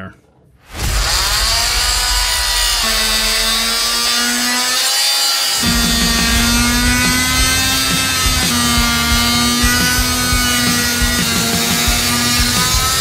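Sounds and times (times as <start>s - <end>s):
rotary tool whining: 0.8s - 13.0s
rotary tool grinding plastic: 1.0s - 13.0s.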